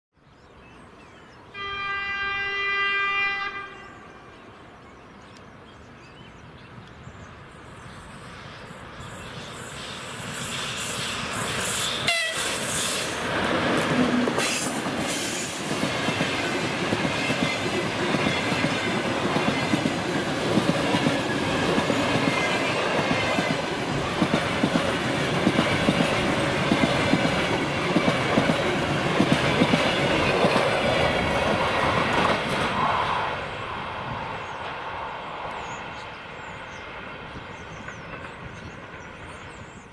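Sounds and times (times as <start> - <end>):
locomotive horn: 1.6 - 4.2, 12.0 - 13.1
train rumbling past: 6.4 - 39.9.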